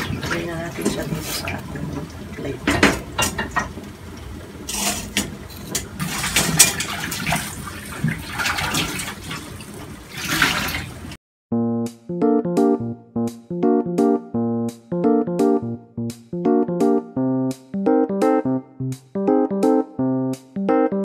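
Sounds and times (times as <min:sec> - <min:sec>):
water splashing and dripping: 0:00.0 - 0:11.2
tongs clattering on metal pot: 0:02.7 - 0:03.7.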